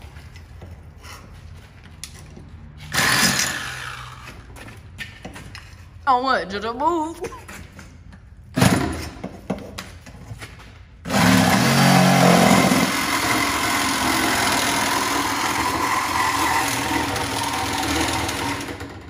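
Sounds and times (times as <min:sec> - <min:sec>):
power cutter cutting metal pipe: 0:02.9 - 0:04.2, 0:11.1 - 0:19.0.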